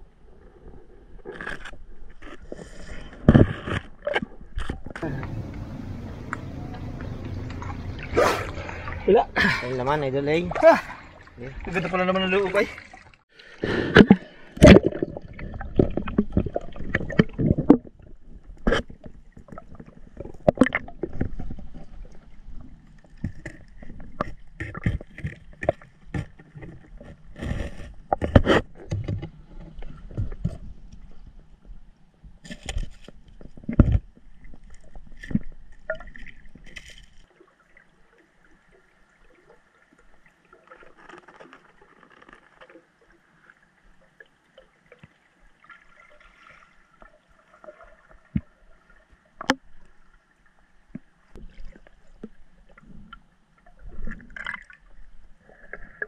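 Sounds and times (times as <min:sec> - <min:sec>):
faint water gurgling: 0:00.0 - 0:56.0
lake water sloshing and splashing: 0:02.2 - 0:28.2, 0:33.4 - 0:50.3.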